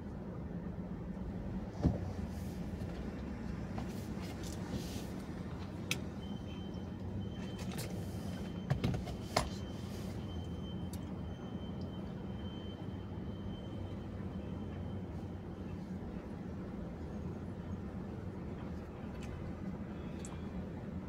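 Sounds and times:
low rumble inside car: 0.0 - 21.0.

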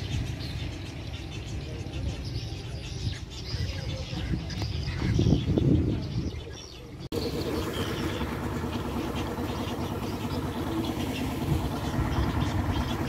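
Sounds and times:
small motor running steadily: 7.1 - 13.0.

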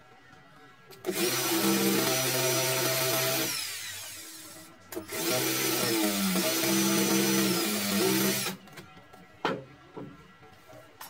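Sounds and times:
cordless drill boring into concrete: 1.1 - 8.6.

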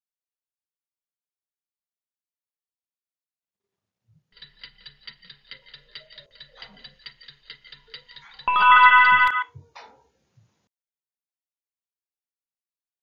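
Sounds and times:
rapid clock ticking: 4.4 - 9.4
loud alarm ring: 8.5 - 9.5.

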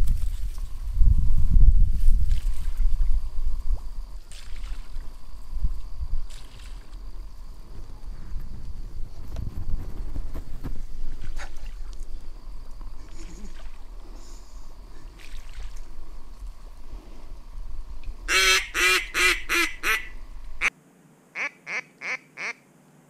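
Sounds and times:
low wind rumble: 0.0 - 20.7
duck quacking: 18.3 - 20.7, 21.4 - 22.6.

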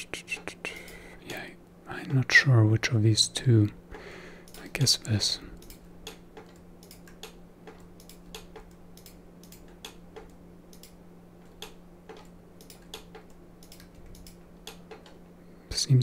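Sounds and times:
faint low hum: 0.0 - 16.0
computer mouse clicking: 5.6 - 15.2.

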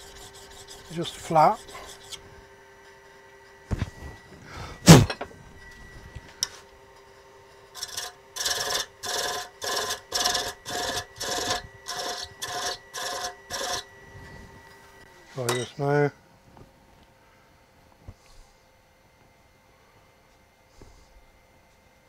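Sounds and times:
thread chaser cutting wood: 0.0 - 2.3, 7.7 - 14.0
wood lathe humming: 0.0 - 15.2.

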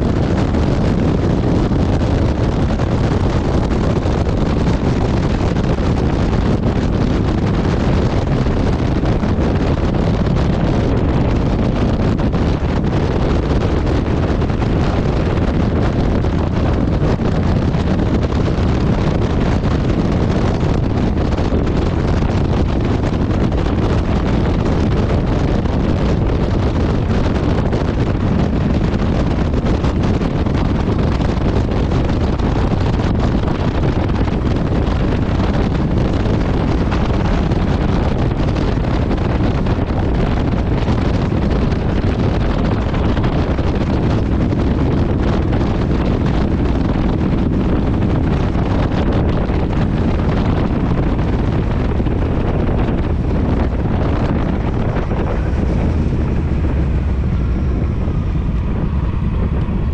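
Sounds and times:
wind buffeting microphone: 0.0 - 59.9
motorcycle engine cruising: 0.1 - 59.9.

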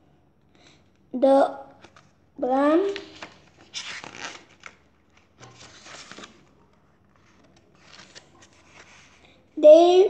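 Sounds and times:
book pages turning and rustling: 1.8 - 2.2, 2.8 - 9.5.

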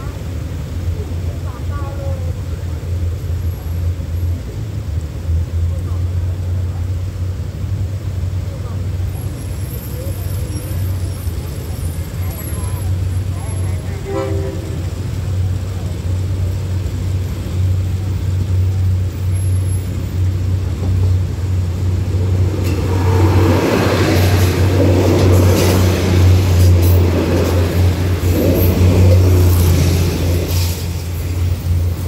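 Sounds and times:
diesel train drone: 0.0 - 32.0
train wheels clattering over rails: 9.1 - 32.0.

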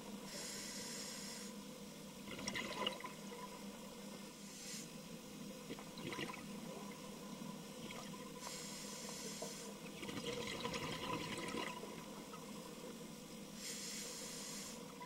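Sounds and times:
regulator inhalation hiss: 0.2 - 1.6, 4.4 - 5.0, 8.4 - 9.8, 13.5 - 14.9
exhaled bubbles burbling: 2.2 - 3.6, 5.7 - 8.4, 9.8 - 12.6.

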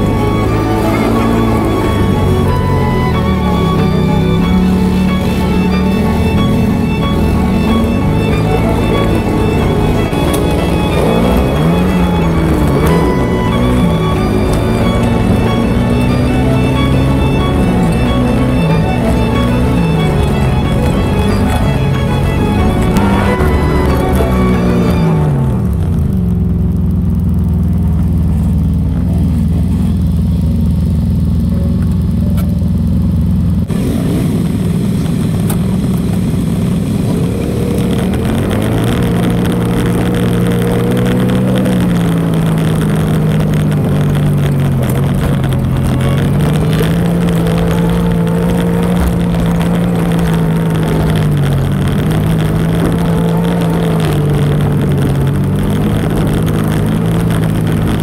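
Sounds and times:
rushing noise: 0.0 - 30.7
atv engine revving: 0.0 - 58.0.

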